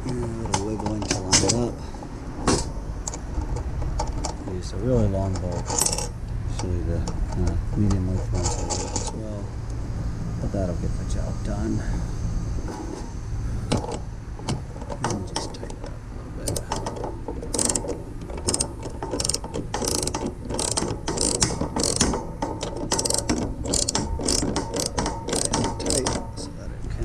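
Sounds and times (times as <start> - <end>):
ratchet wrench clicking: 5.6 - 6.6, 16.5 - 26.4.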